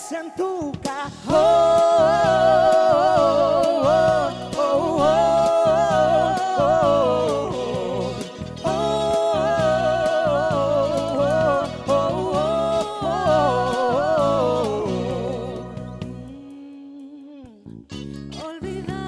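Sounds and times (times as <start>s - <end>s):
man and woman singing duet: 0.0s - 17.7s, 18.4s - 19.0s
instrumental backing music: 0.4s - 19.0s.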